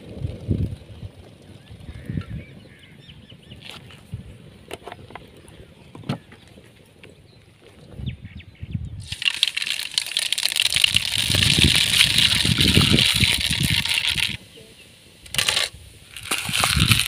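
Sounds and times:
hot oil crackling and spattering: 9.0s - 14.5s, 15.2s - 17.0s
lentils sizzling in oil: 9.0s - 17.0s.

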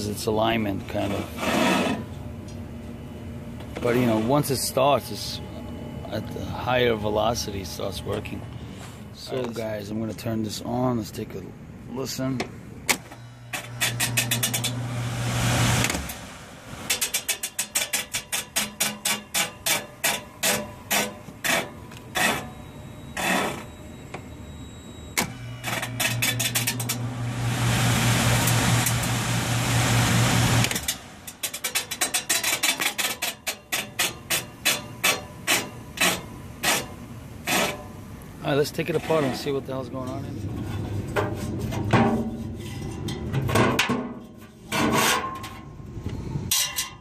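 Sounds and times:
motor hum: 12.5s - 17.2s, 21.3s - 31.5s
rush of air: 14.7s - 17.0s.

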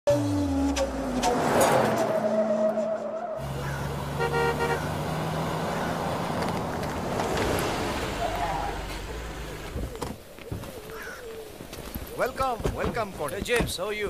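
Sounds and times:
car driving with whine: 0.1s - 10.6s
car horn toot: 2.1s - 5.2s
engine running low: 3.4s - 10.1s.

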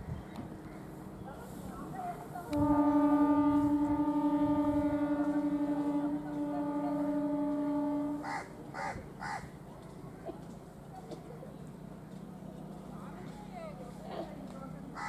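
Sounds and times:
train horn blast: 2.3s - 9.1s.

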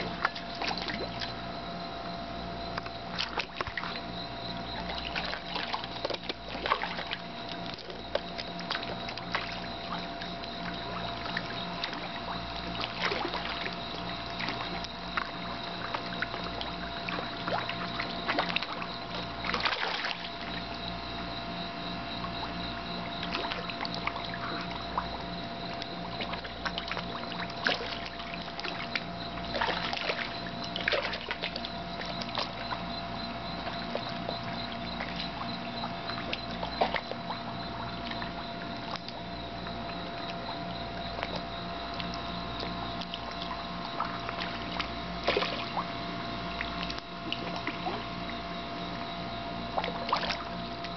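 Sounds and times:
fish splashing in water: 0.0s - 1.6s, 2.6s - 50.9s
steady hum: 0.0s - 50.9s.

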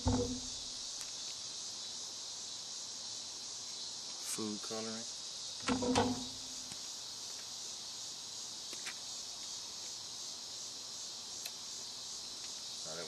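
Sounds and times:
insects chirring: 0.0s - 13.0s
faint ticks: 11.4s - 11.6s, 12.4s - 12.6s.

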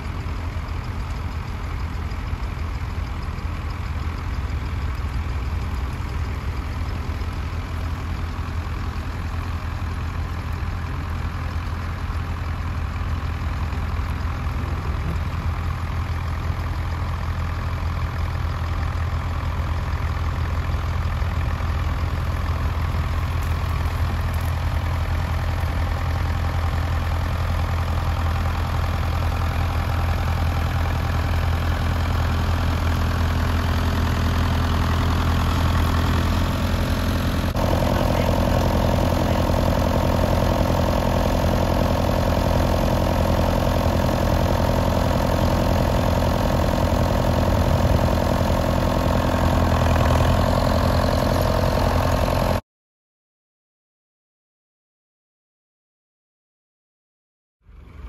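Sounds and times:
tractor engine running: 0.0s - 52.6s
higher drone: 37.5s - 40.9s.

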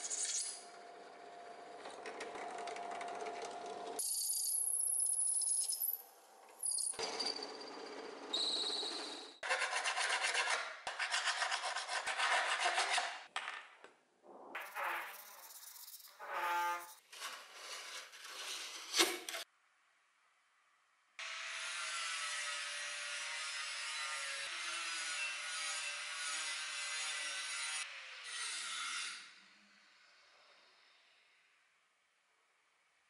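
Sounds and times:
hand file scraping steel: 9.4s - 13.2s.

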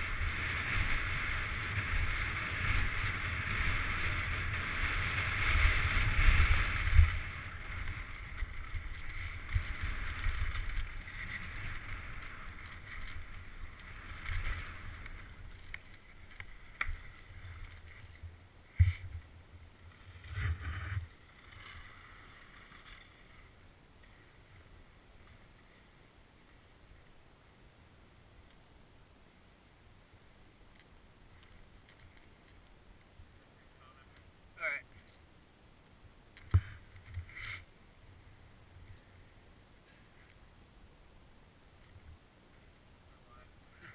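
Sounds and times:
bike tyres rolling on dirt: 0.0s - 27.2s, 30.5s - 34.4s.

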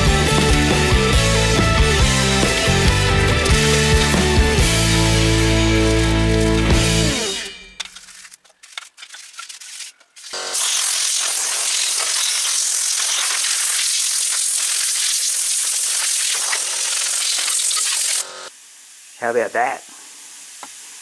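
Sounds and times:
air blow gun hissing: 10.6s - 18.5s.

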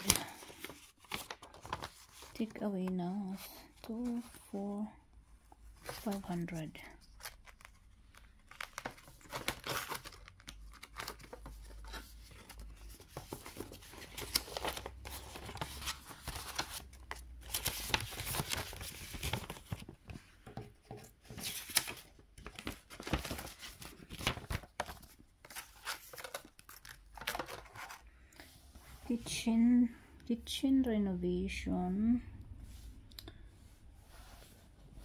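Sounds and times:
paper rustling and crinkling: 0.0s - 4.6s, 5.3s - 28.1s.

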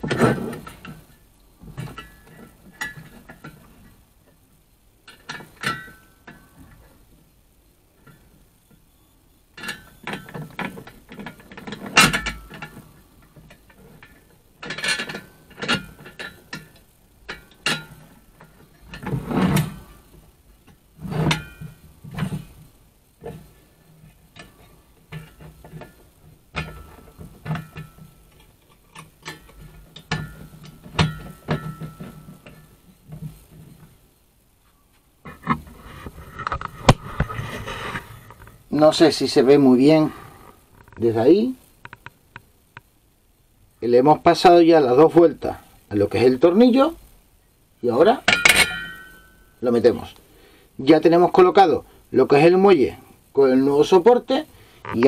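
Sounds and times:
metal clinks and scrapes on spring: 1.8s - 4.0s, 5.0s - 6.9s, 9.6s - 22.6s, 23.2s - 33.8s, 48.0s - 50.2s.

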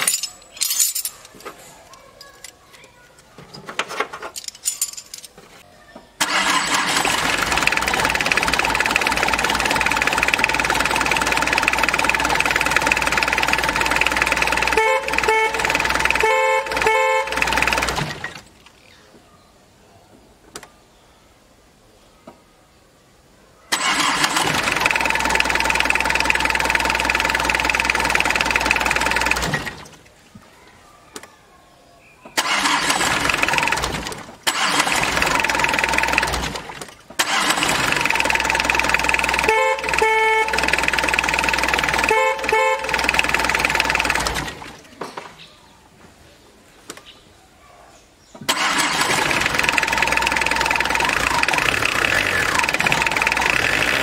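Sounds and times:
diesel engine starting and running: 6.2s - 18.5s, 23.7s - 30.0s, 32.4s - 44.9s, 48.4s - 54.0s.

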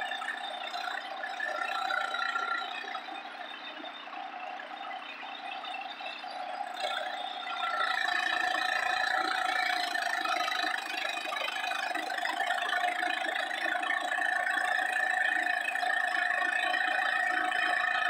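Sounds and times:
garden tractor engine running: 6.6s - 18.0s.

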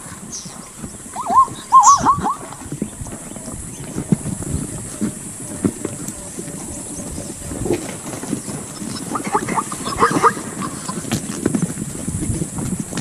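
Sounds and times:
hooves clattering on stony ground: 0.0s - 13.0s
short animal calls: 1.1s - 2.6s, 8.8s - 11.1s.

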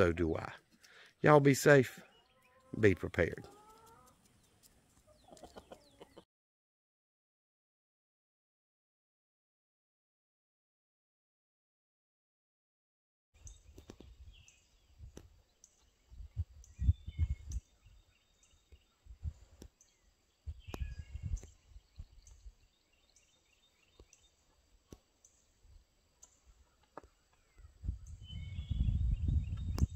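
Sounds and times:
birds chirping: 0.0s - 6.3s, 13.4s - 29.9s
wind rumbling on microphone: 13.4s - 15.4s, 16.0s - 18.1s, 18.8s - 19.7s, 20.4s - 22.6s, 27.5s - 29.9s.

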